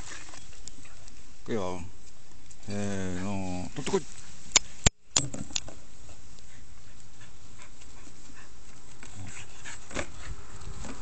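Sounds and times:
dog panting: 0:06.0 - 0:10.7.

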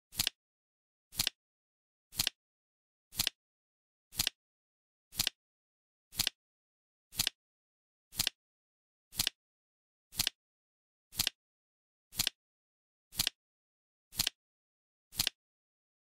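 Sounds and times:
flip clock cards clicking: 0:00.1 - 0:00.4, 0:01.1 - 0:01.4, 0:02.1 - 0:02.4, 0:03.1 - 0:03.4, 0:04.1 - 0:04.4, 0:05.1 - 0:05.4, 0:06.1 - 0:06.4, 0:07.2 - 0:07.4, 0:08.1 - 0:08.4, 0:09.2 - 0:09.4, 0:10.1 - 0:10.4, 0:11.1 - 0:11.4, 0:12.1 - 0:12.4, 0:13.1 - 0:13.4, 0:14.2 - 0:14.4, 0:15.1 - 0:15.4.

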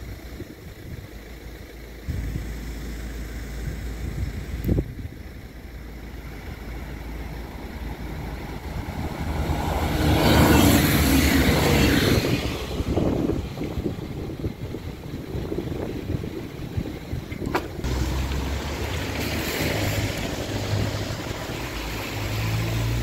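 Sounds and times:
train passing on track: 0:06.4 - 0:16.6, 0:17.4 - 0:23.0.

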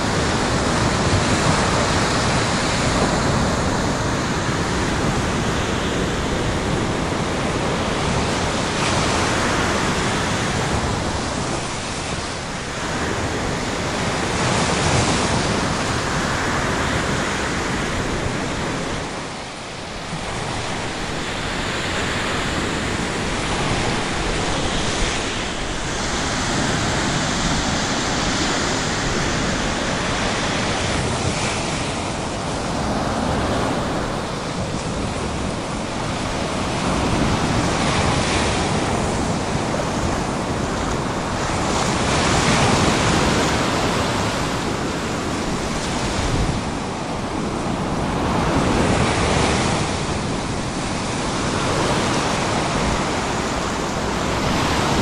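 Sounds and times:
ocean waves breaking on beach: 0:00.0 - 0:55.0.

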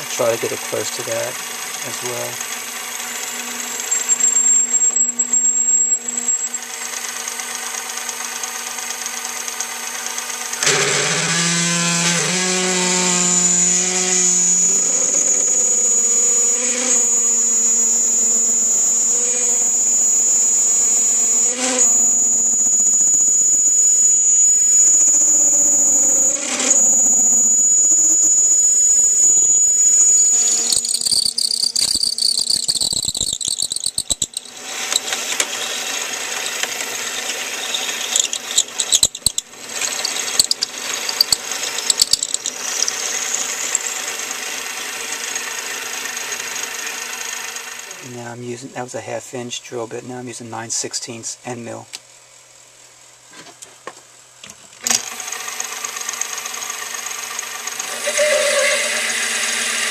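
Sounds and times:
lathe drilling metal whine: 0:00.0 - 0:48.2, 0:54.9 - 0:59.9
sharp clicks: 0:30.4 - 0:35.8, 0:36.4 - 0:43.9.

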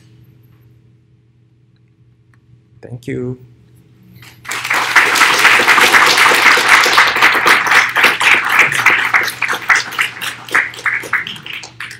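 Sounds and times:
audience applauding: 0:04.4 - 0:11.9.

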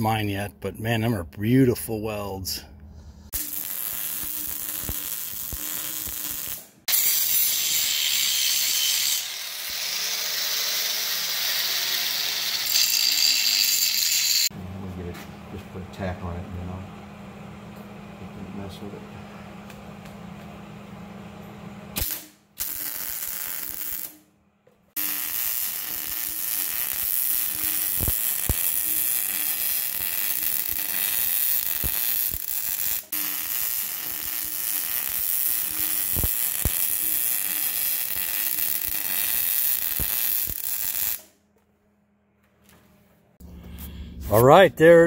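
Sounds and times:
welding arc crackling: 0:03.4 - 0:07.5, 0:08.5 - 0:14.5, 0:22.0 - 0:24.1, 0:25.0 - 0:41.3.

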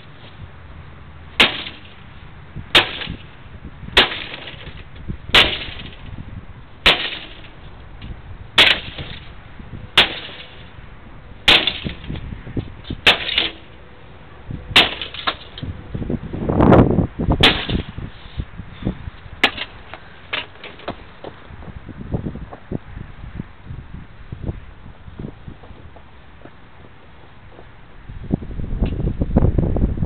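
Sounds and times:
axe striking computer parts: 0:01.4 - 0:02.0, 0:02.7 - 0:03.2, 0:04.0 - 0:06.1, 0:06.8 - 0:07.5, 0:08.6 - 0:09.3, 0:10.0 - 0:10.6, 0:11.4 - 0:12.2, 0:12.9 - 0:13.7, 0:14.8 - 0:15.6, 0:17.4 - 0:18.0, 0:19.4 - 0:21.0.

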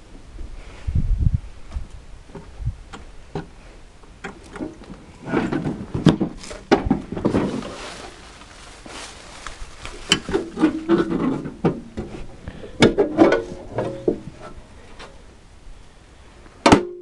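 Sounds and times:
clicks knocks and rustling from handling: 0:04.2 - 0:12.2.

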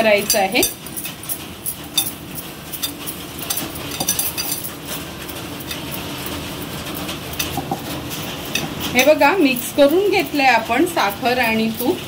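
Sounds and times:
bangles clinking on glass: 0:00.2 - 0:05.0, 0:08.5 - 0:12.0.

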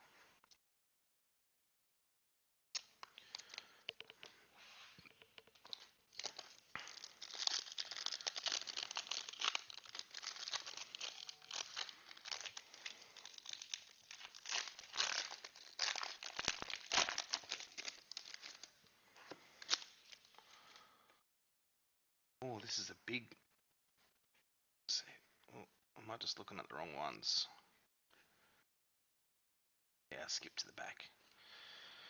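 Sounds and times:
foil wrapper tearing and crinkling: 0:02.8 - 0:03.9, 0:05.4 - 0:18.7, 0:19.5 - 0:20.3.

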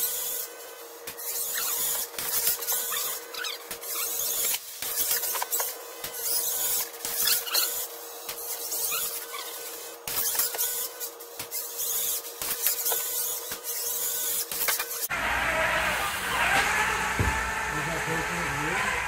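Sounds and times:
sped-up robot motor chatter: 0:01.2 - 0:15.1.

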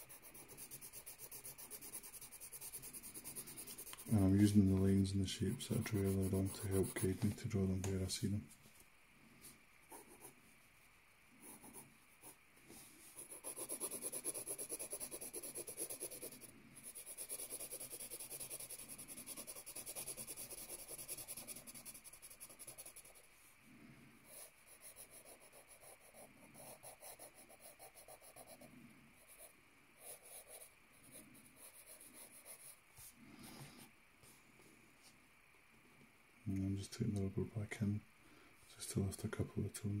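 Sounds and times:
pencil scratching on paper: 0:00.0 - 0:08.1, 0:09.9 - 0:10.4, 0:11.4 - 0:23.3, 0:24.2 - 0:33.6.

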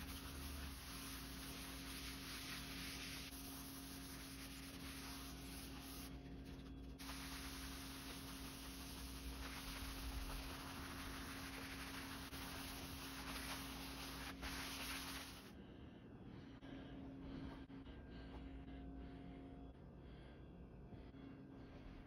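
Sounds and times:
cloth rubbing on wood: 0:00.0 - 0:06.1, 0:06.9 - 0:15.5
steady low hum: 0:00.0 - 0:22.0.

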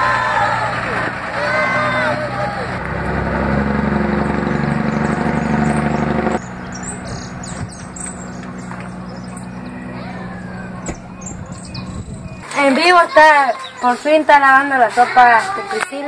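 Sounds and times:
truck engine running: 0:00.0 - 0:12.4
birds chirping: 0:03.4 - 0:16.0.

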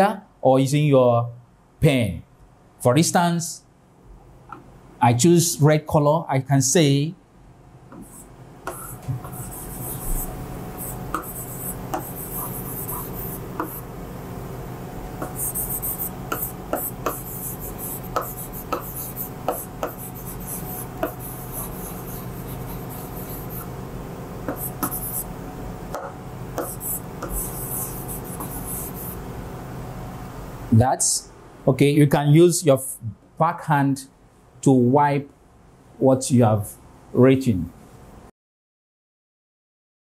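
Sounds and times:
pen scratching on whiteboard: 0:07.9 - 0:13.9, 0:15.2 - 0:23.8, 0:24.5 - 0:25.3, 0:25.9 - 0:29.2
pen tip tapping: 0:19.5 - 0:20.0.

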